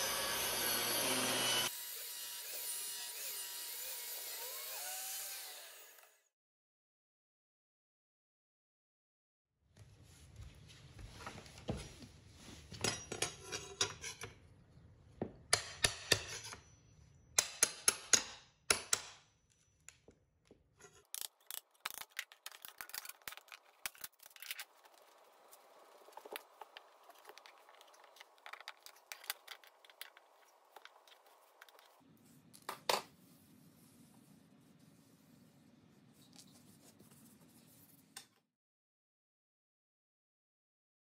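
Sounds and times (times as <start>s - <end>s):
hammer striking steel pry bar: 15.5s - 16.7s, 17.4s - 19.4s.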